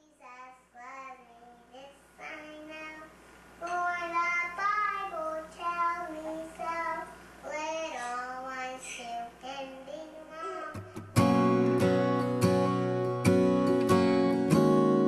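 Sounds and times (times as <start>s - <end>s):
child singing slow melody: 0.0s - 11.0s.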